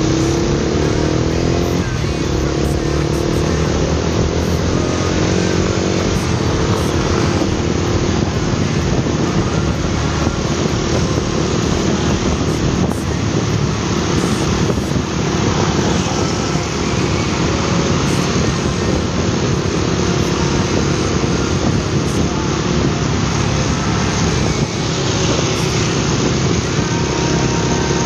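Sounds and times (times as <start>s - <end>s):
motorcycle engine accelerating: 0.0s - 28.0s
wind and road noise: 0.0s - 28.0s.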